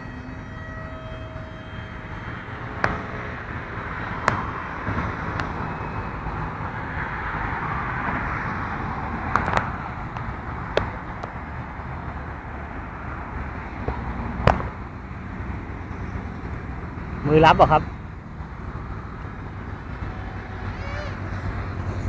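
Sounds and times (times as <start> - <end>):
propeller rushing: 0.0 - 11.6.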